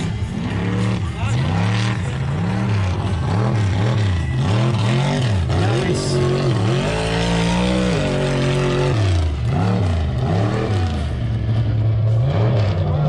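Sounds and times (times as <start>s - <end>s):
truck engine revving: 0.0s - 13.0s.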